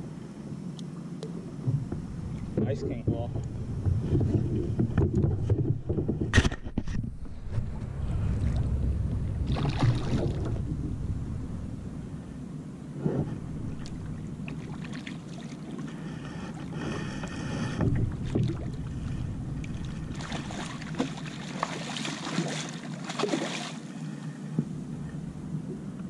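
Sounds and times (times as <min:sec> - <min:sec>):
wind rumble on microphone: 0:01.4 - 0:22.6
low thumps: 0:01.6 - 0:14.8, 0:17.6 - 0:21.2
fish thrashing and splashing: 0:09.4 - 0:10.8, 0:18.2 - 0:23.9.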